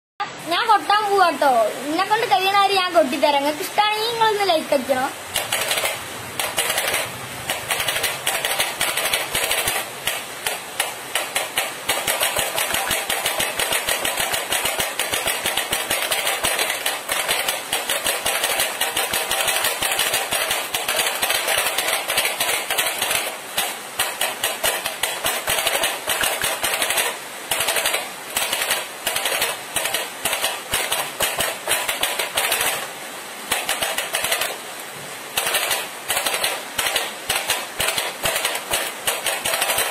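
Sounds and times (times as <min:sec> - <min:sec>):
fast hand drumming on a box: 0:05.4 - 0:10.2, 0:11.2 - 0:32.8.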